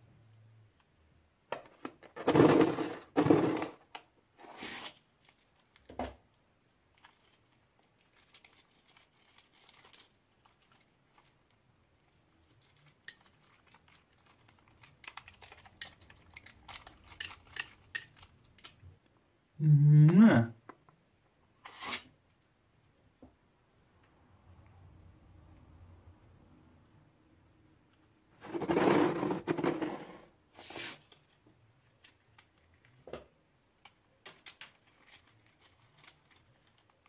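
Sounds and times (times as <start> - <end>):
rubber balloon crinkling: 28.4 - 30.0.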